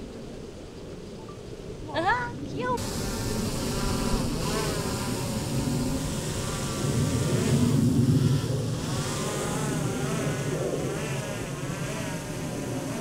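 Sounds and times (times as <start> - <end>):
drone propeller buzz: 2.7 - 13.0.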